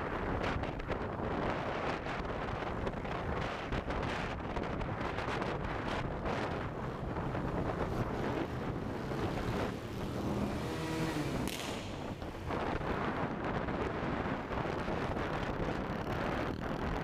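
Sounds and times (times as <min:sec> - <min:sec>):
wind rushing over microphone: 0:00.0 - 0:17.0
motorcycle engine running: 0:05.6 - 0:17.0
sharp knock: 0:11.4 - 0:12.3.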